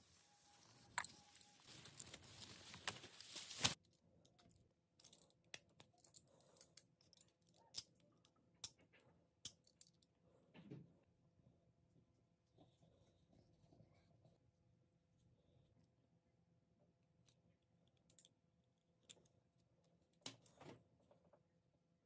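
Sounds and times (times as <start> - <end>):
bush leaves and twigs rustling: 0.0 - 3.8.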